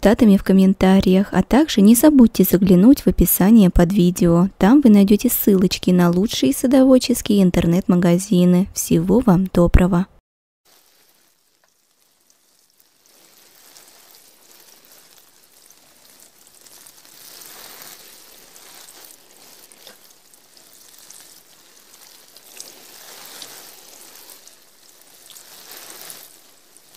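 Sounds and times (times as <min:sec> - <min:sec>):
rain pattering: 0:10.7 - 0:26.9.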